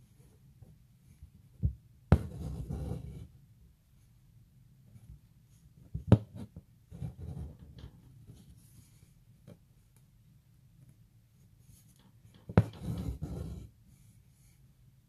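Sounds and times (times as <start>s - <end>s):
faint thread rustles: 4.8s - 10.2s, 10.8s - 14.9s
thread rasping through fabric: 6.2s - 8.6s, 11.7s - 13.7s.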